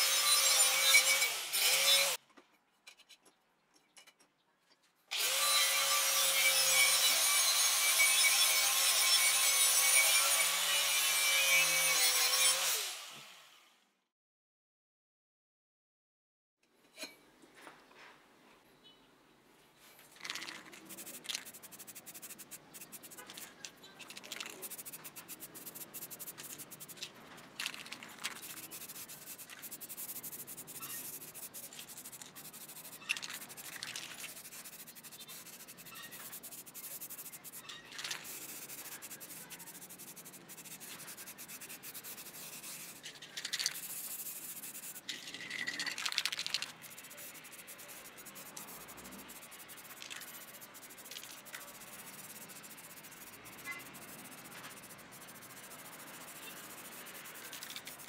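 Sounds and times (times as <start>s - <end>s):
aerosol spray can hissing: 20.2s - 23.5s, 24.2s - 27.0s, 27.6s - 58.0s.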